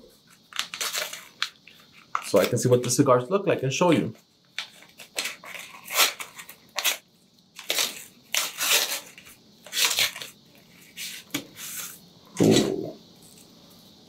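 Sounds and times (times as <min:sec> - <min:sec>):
packaging crinkling and rustling: 0:00.4 - 0:02.7, 0:04.6 - 0:07.0, 0:07.6 - 0:10.4.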